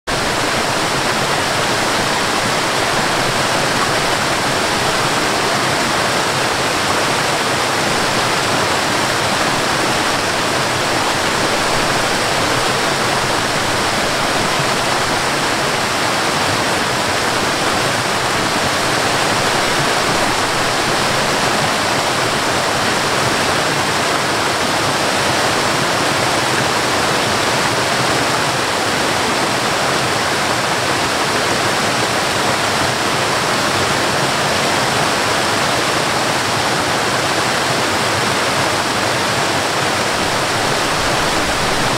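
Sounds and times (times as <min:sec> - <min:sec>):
waterfall cascading over rocks: 0:00.1 - 0:41.9.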